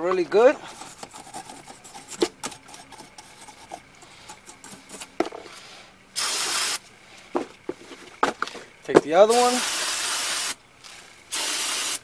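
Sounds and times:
wire brush scrubbing metal: 0.3 - 5.6.

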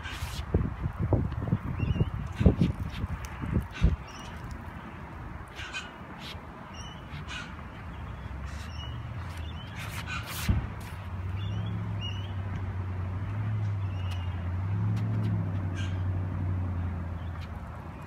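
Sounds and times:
birds calling: 1.5 - 10.5, 11.3 - 12.4, 15.6 - 16.1
low engine hum: 6.8 - 18.0.

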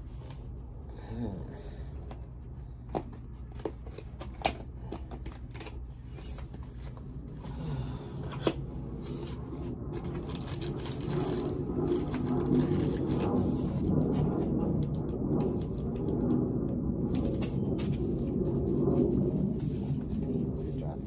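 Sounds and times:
packaging rustling: 8.3 - 16.3.

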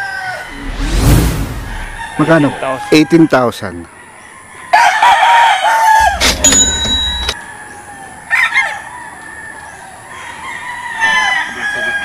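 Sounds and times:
rooster crowing: 0.0 - 0.8, 1.6 - 3.5, 4.3 - 6.3, 7.3 - 12.0.

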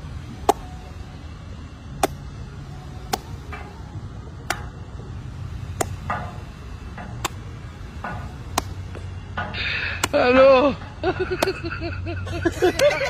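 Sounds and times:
steady low rumble: 0.0 - 13.0
rackets striking shuttlecock: 0.2 - 1.0, 1.9 - 10.5, 11.3 - 11.6.

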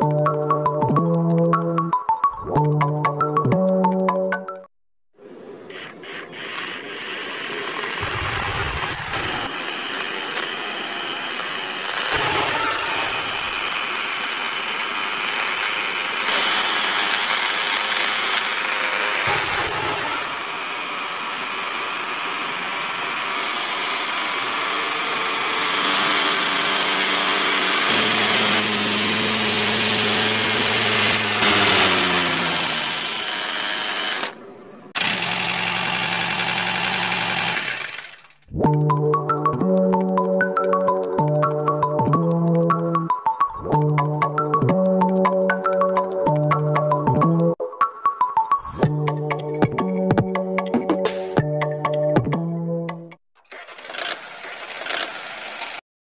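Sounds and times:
small motor whining: 5.6 - 38.5, 53.4 - 55.8
toy mill grinding grain: 5.7 - 38.5, 53.4 - 55.8.

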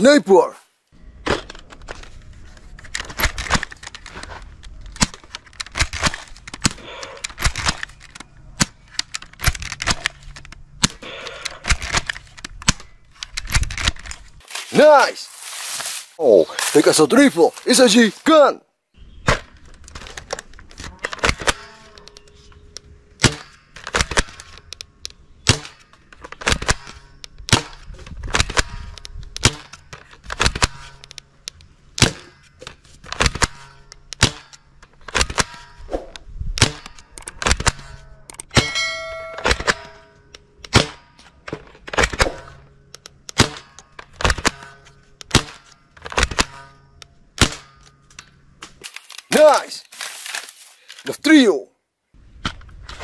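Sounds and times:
metal targets clanging: 32.0 - 48.6.

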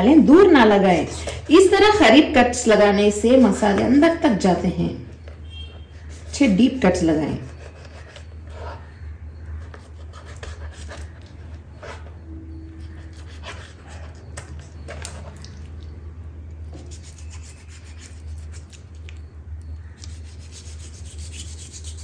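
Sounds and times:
knife scraping cutting board: 5.7 - 15.4, 16.8 - 18.8, 20.0 - 22.0
knife cutting raw chicken: 7.2 - 8.9, 9.5 - 15.5.

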